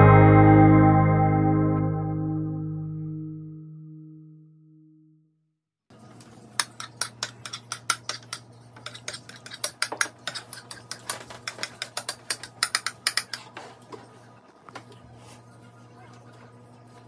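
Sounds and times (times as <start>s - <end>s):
spoon clinking and scraping dishes: 6.6s - 13.6s.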